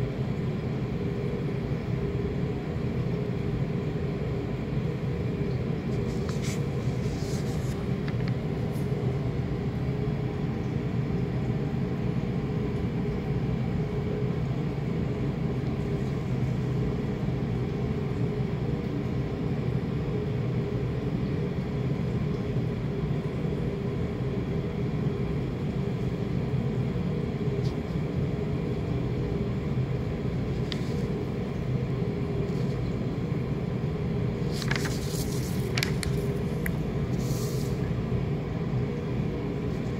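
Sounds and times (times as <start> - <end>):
low mechanical hum and rumble: 0.0 - 39.9
paper sheets rustling: 6.0 - 7.8, 34.4 - 37.8.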